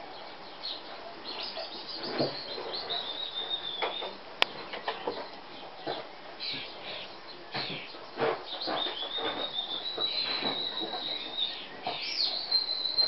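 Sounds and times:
small birds chirping: 0:00.0 - 0:13.0
puppies yipping: 0:02.1 - 0:04.2.

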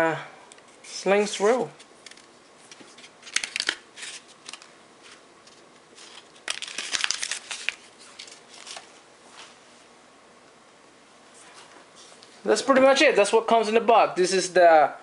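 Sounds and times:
packaging crinkling: 0:01.8 - 0:09.0.

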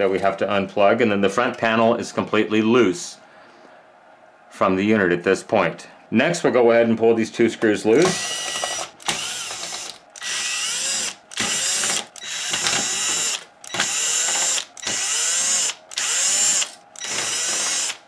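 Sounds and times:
power screwdriver whirring: 0:08.0 - 0:18.0.

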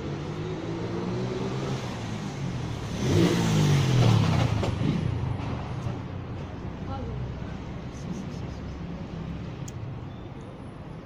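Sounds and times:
vehicle engine passing by: 0:00.0 - 0:06.1.

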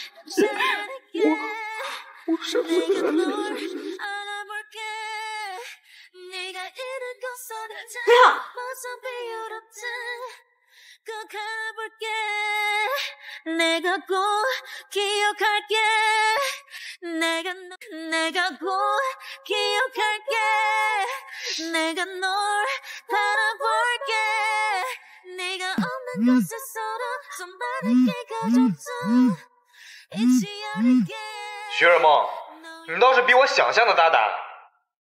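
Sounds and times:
woman singing slow melody: 0:00.0 - 0:10.3, 0:17.1 - 0:29.4, 0:30.1 - 0:31.8.

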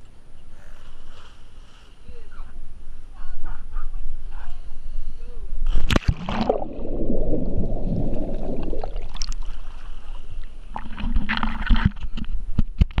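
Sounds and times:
water sloshing and splashing: 0:05.7 - 0:12.1
underwater bubbling: 0:05.8 - 0:11.8.

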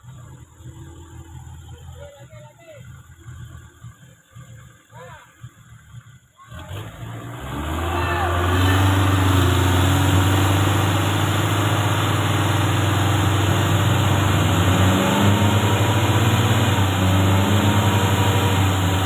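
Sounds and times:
truck engine revving under load: 0:05.4 - 0:19.0.

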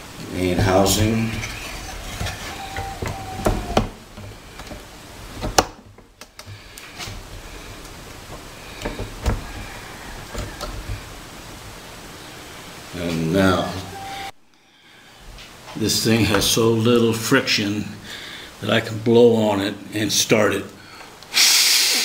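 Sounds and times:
plastic parts clicking and knocking: 0:01.4 - 0:09.6.

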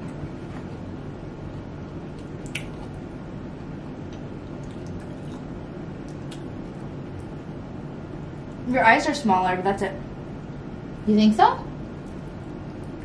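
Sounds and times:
low room hum: 0:00.0 - 0:13.0
wet chewing: 0:02.1 - 0:03.0, 0:04.1 - 0:07.5.

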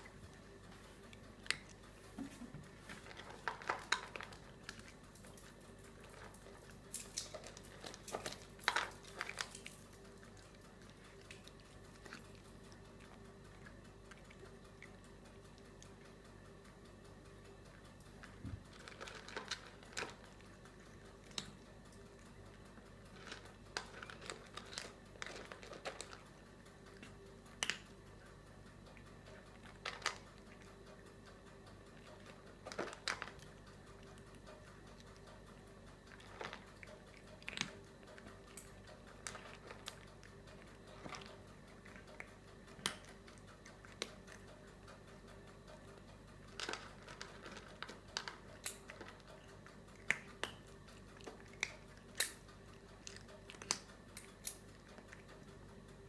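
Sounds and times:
cat crunching food: 0:00.0 - 0:56.0.

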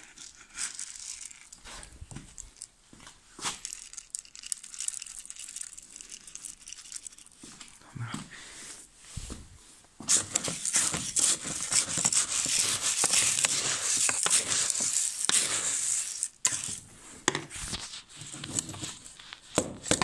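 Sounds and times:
seed feed rattling in plastic bowl: 0:00.0 - 0:02.7, 0:03.4 - 0:07.8, 0:10.1 - 0:16.8
plastic crinkling: 0:00.0 - 0:07.8, 0:10.1 - 0:16.8.

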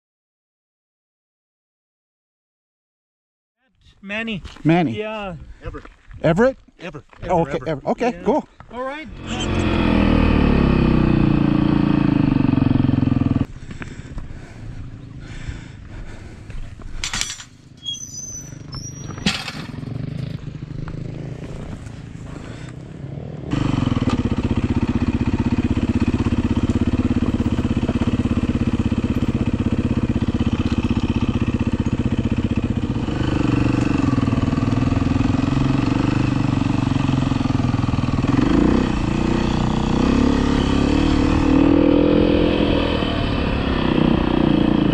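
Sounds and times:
dirt bike engine running: 0:09.0 - 0:17.0, 0:18.5 - 0:44.9.

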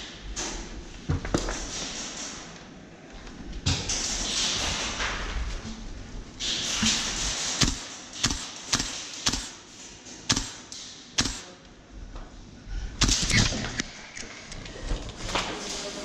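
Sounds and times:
airsoft gun shots cracking: 0:07.6 - 0:09.6, 0:10.3 - 0:10.6, 0:11.2 - 0:11.5.

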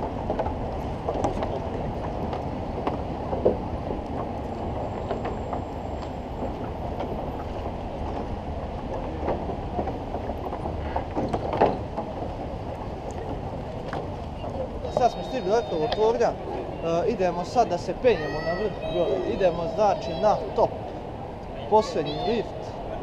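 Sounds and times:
footsteps on wooden planks: 0:00.0 - 0:17.3
low outdoor rumble: 0:00.0 - 0:23.0.

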